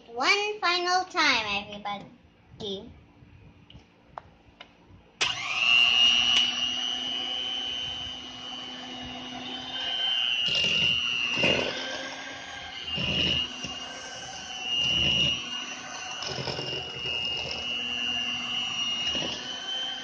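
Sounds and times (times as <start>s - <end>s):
electric hand mixer whining: 5.2s - 20.0s.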